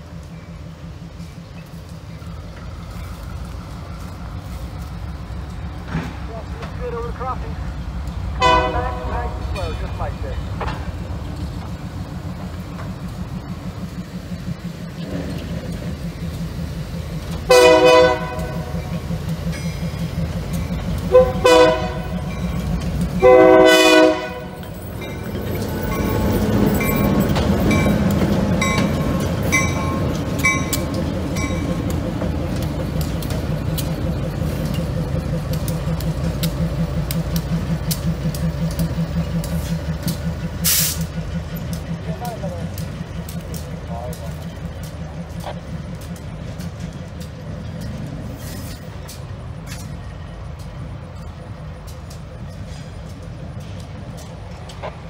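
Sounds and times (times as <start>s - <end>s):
diesel locomotive engine throbbing: 0.0s - 55.0s
train wheels clicking: 0.0s - 55.0s
air hiss burst: 40.6s - 41.1s.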